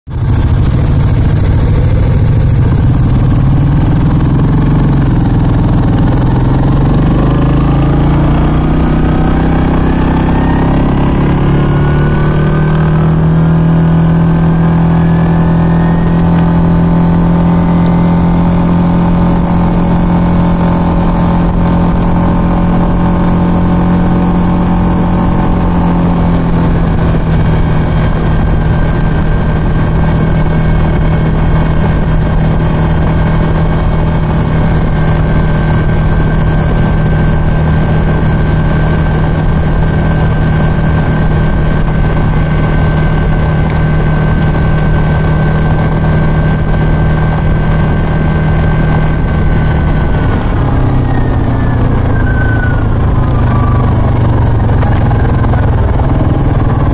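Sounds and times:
atv engine running: 0:00.1 - 0:56.9.

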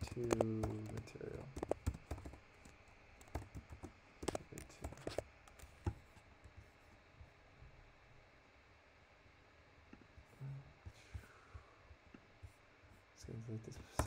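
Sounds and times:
keyboard typing: 0:00.0 - 0:06.0.

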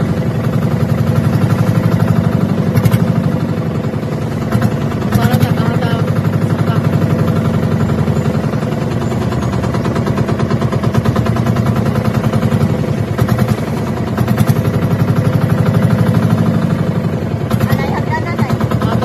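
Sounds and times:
boat engine chugging: 0:00.0 - 0:19.0.

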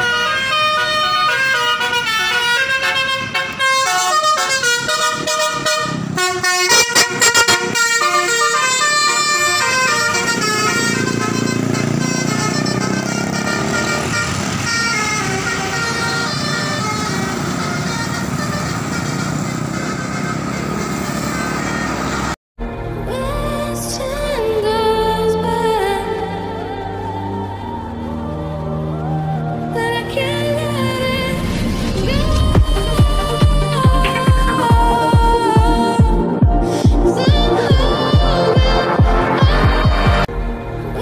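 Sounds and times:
multi-tone air horn melody: 0:00.0 - 0:22.4
bus engine and tyre noise: 0:00.0 - 0:41.0.

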